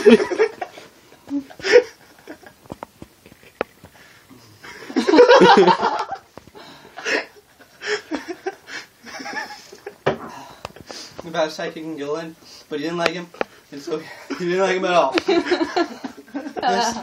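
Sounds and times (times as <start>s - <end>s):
person laughing: 0.0s - 3.6s.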